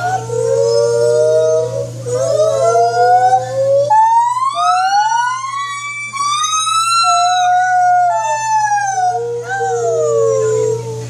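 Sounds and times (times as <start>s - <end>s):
gibbon hooting calls: 0.0s - 11.0s.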